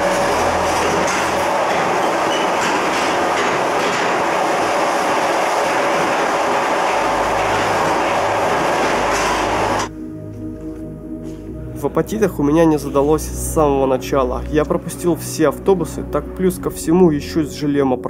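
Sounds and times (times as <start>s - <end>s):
train rail noise: 0.0s - 9.9s
low hum: 0.0s - 14.0s.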